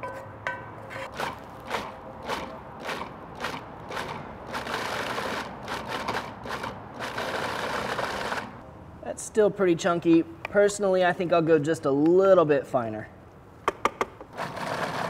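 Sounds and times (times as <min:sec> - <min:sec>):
food processor motor pulsing: 0:01.2 - 0:08.5, 0:14.4 - 0:15.0.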